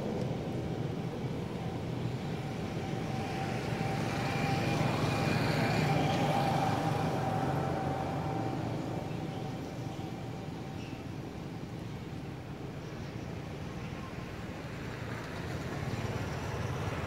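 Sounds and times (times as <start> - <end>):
vehicle engine droning with whine: 0.1 - 11.8.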